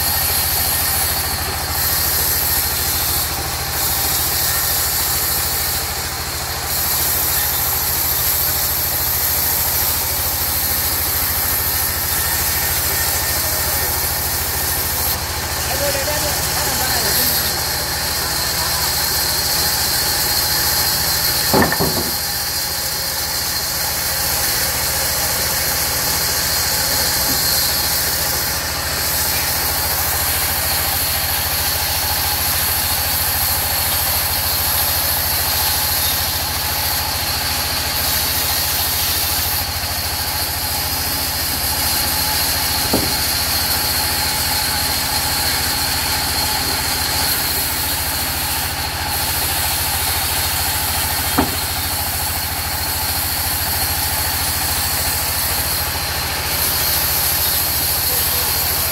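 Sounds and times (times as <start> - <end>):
band saw running: 0.0 - 58.9
short sharp knocks: 21.5 - 22.2, 42.9 - 43.2, 51.4 - 51.8.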